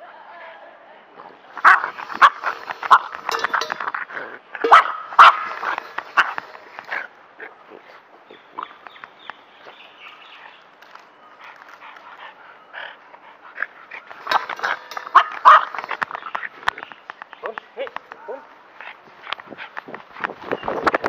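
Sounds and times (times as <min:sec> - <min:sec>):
dogs barking: 0:01.6 - 0:03.8, 0:04.6 - 0:07.7, 0:11.8 - 0:16.4.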